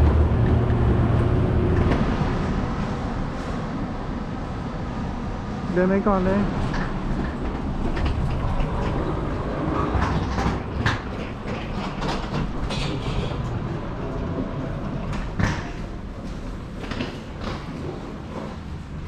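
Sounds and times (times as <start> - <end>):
suitcase wheels rolling on floor: 6.6 - 19.0.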